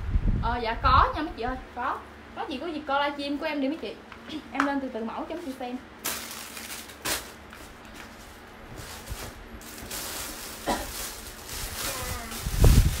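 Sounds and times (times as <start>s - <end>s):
clothes and plastic bags rustling: 5.2s - 13.0s.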